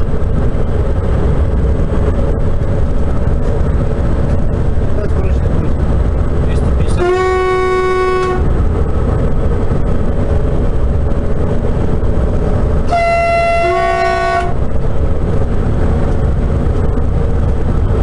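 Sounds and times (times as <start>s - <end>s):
train rumbling at speed: 0.0s - 18.0s
train horn blast: 6.8s - 8.6s, 12.8s - 14.6s.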